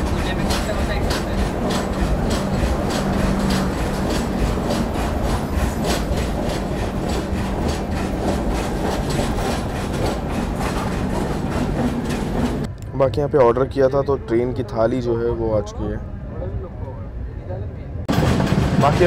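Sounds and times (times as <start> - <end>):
train wheels clicking over rail joints: 0.0 - 12.7, 18.1 - 19.0
steady train rumble: 0.0 - 12.9, 14.6 - 19.0.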